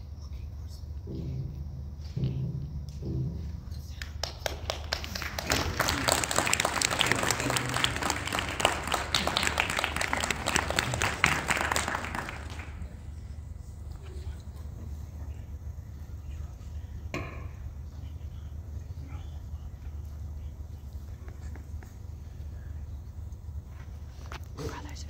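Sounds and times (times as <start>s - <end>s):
audience applauding: 4.0s - 13.3s.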